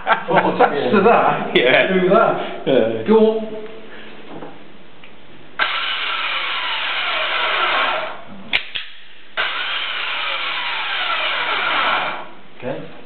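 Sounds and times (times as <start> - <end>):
mine shaft winch running: 5.6 - 8.2, 9.4 - 12.3.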